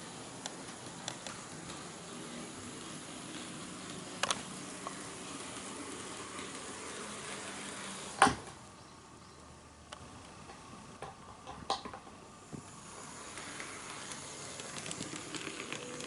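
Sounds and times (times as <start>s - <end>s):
model train motor whirring: 0.0s - 8.3s, 12.5s - 16.0s
wheels clicking over rail joints: 10.3s - 16.0s.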